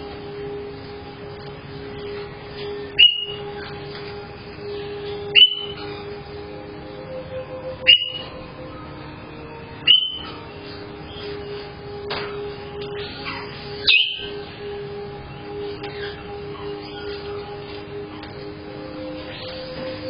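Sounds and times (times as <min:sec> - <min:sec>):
steady low hum: 0:00.0 - 0:20.0
parrot shrieking: 0:09.9 - 0:10.4, 0:13.0 - 0:14.4, 0:15.9 - 0:17.4.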